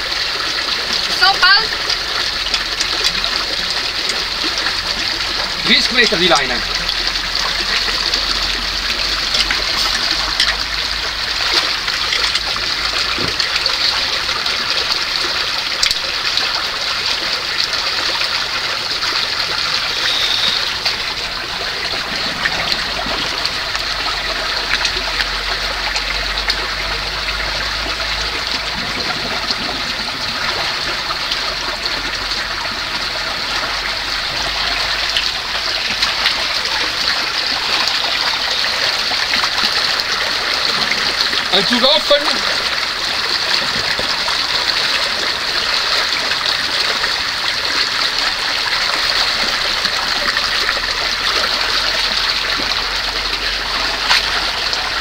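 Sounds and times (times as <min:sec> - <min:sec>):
water running over rocks: 0:00.0 - 0:55.0
short clicks and splashes: 0:01.1 - 0:17.8, 0:50.6 - 0:55.0.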